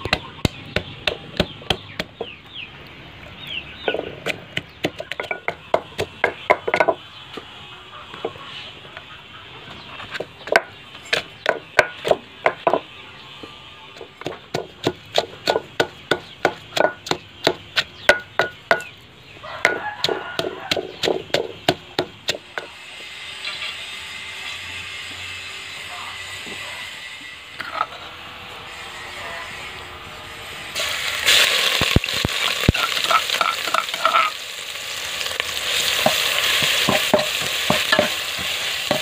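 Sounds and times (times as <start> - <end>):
pestle pounding in a mortar: 0.0 - 2.3, 3.9 - 7.0, 10.2 - 12.8, 14.0 - 18.9, 19.6 - 22.8, 36.0 - 39.0.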